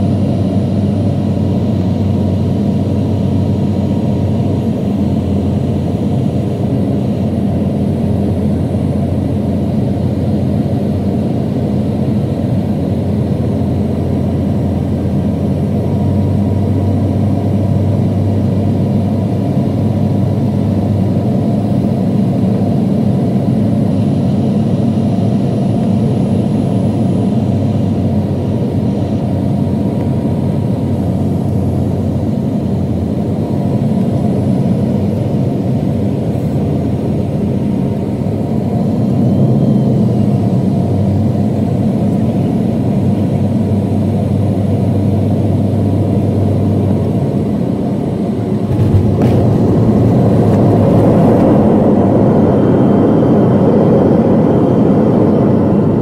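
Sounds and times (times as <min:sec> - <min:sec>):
jet engines rumbling in cabin: 0:00.0 - 0:56.0
rushing air: 0:47.8 - 0:56.0.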